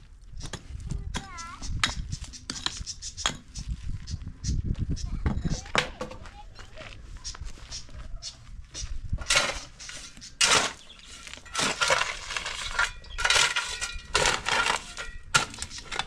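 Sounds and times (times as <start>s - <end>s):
digging blade scraping stony soil: 8.6s - 16.0s
stones clinking against metal: 9.2s - 16.0s.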